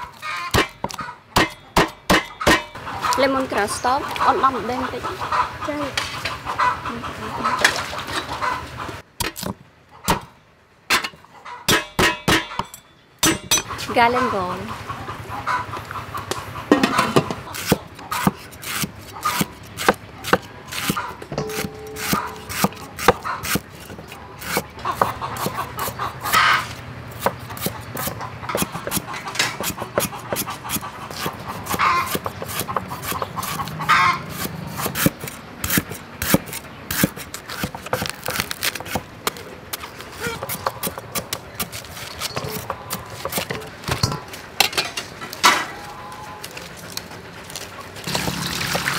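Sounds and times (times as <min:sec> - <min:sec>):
cleaver chopping on wooden board: 0:16.8 - 0:25.9, 0:27.2 - 0:33.6, 0:34.3 - 0:44.2.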